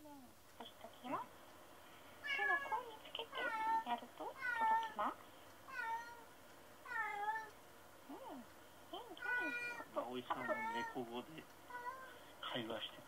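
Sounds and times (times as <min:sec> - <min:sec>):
cat meowing: 0:02.2 - 0:02.8, 0:05.7 - 0:06.3, 0:06.9 - 0:07.5, 0:09.2 - 0:11.0.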